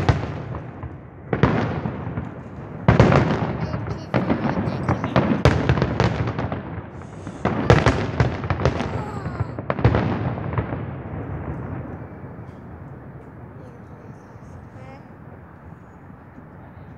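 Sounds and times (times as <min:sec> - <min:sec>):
fireworks bangs and crackling: 0:00.0 - 0:16.9.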